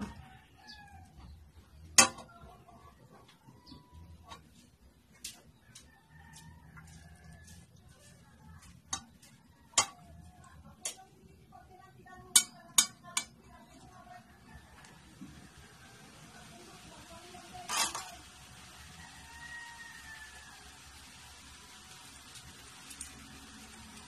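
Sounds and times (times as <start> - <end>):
metal spit clinking on pot: 9.8 - 10.1, 12.3 - 13.4.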